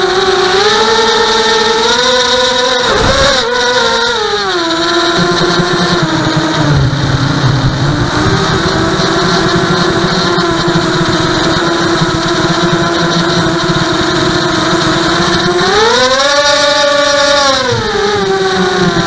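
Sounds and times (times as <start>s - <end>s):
quadcopter motors whining: 0.0s - 19.0s
wind rumble on microphone: 2.8s - 4.0s.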